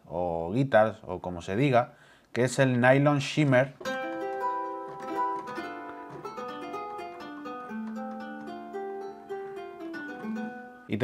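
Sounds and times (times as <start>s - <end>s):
plucked nylon-string guitar notes: 3.8s - 10.9s.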